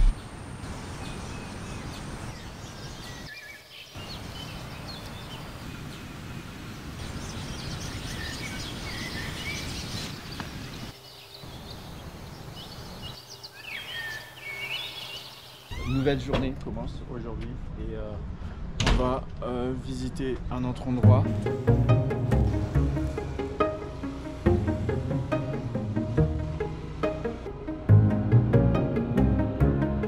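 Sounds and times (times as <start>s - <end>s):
birds chirping: 0.0s - 16.3s, 20.8s - 27.9s
steady background hiss: 0.1s - 17.4s.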